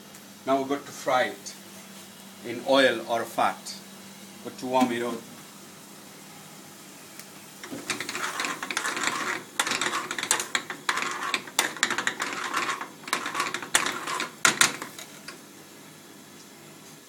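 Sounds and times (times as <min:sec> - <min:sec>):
metal ladle scraping a pan: 0:07.6 - 0:15.4.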